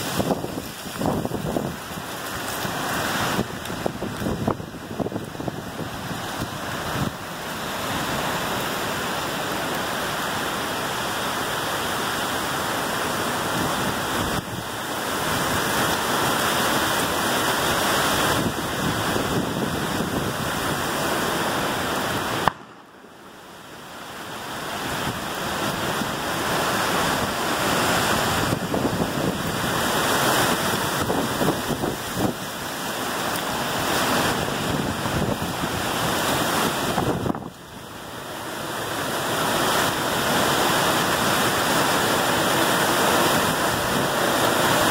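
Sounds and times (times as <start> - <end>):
wind buffeting microphone: 0.0 - 7.3, 24.9 - 32.5, 33.8 - 37.6
heavy rain: 0.0 - 44.9.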